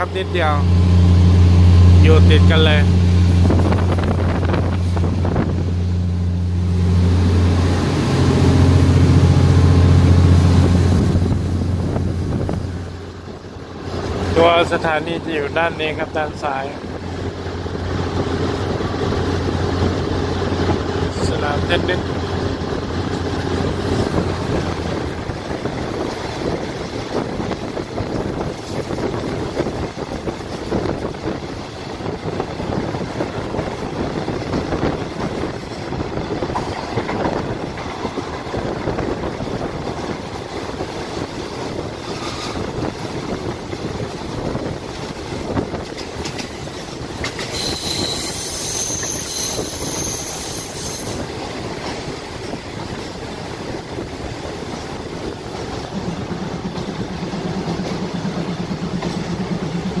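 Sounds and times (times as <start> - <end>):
low hum: 0.0 - 14.3, 55.4 - 60.0
train wheels rumbling and clattering: 0.0 - 60.0
high-pitched metal squeal: 42.1 - 42.6, 47.4 - 51.2.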